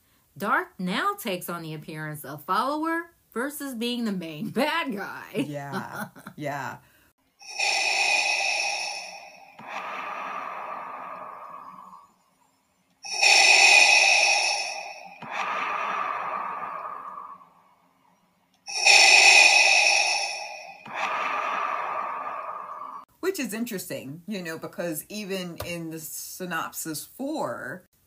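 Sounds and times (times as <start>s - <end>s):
mechanical respirator breathing: 7.4s - 12.2s, 13.0s - 17.6s, 18.7s - 23.0s.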